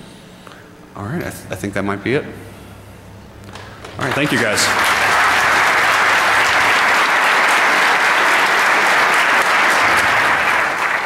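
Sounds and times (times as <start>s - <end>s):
audience applauding: 3.6s - 11.0s.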